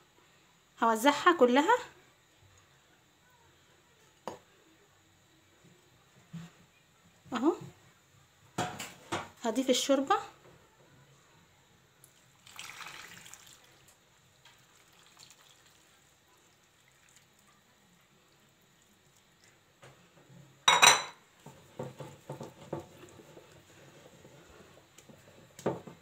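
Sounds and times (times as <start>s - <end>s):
faint liquid sounds: 10.5s - 26.0s
broth splashing as poured: 12.1s - 17.5s
glass bowl clinking on countertop: 20.6s - 21.2s.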